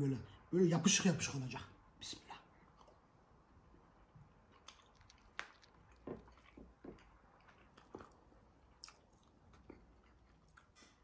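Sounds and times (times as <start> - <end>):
man chewing food: 2.5 - 11.0.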